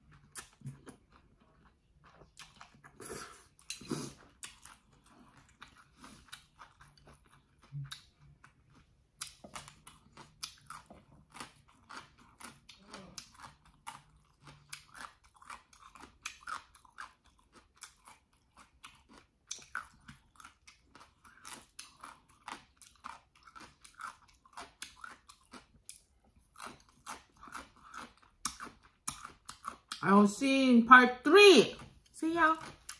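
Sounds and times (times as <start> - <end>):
person chewing noodles: 0.0 - 30.0, 31.8 - 32.9.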